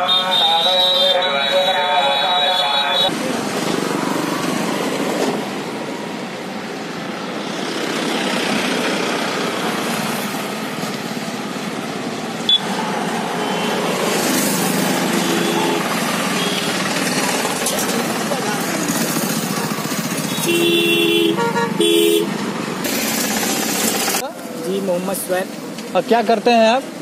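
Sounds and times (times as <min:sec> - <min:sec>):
road traffic rumble with tyre noise: 0:00.0 - 0:27.0
motorcycle engine: 0:13.5 - 0:24.2.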